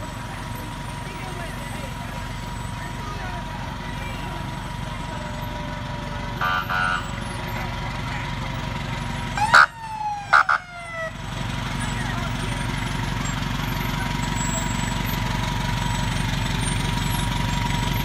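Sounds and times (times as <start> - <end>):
fire engine engine running: 0.0 - 18.0
horn blasts: 6.4 - 7.3
siren whoop: 9.4 - 11.2.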